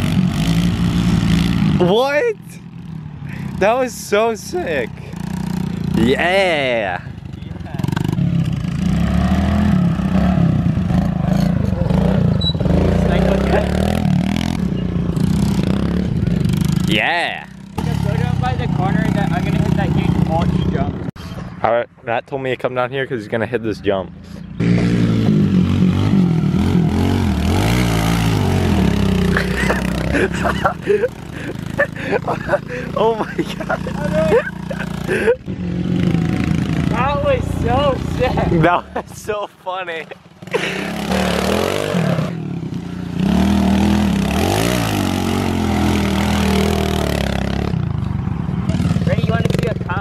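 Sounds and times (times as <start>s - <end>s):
dirt bike engine revving: 0.0s - 21.1s, 24.6s - 38.8s, 40.4s - 50.0s.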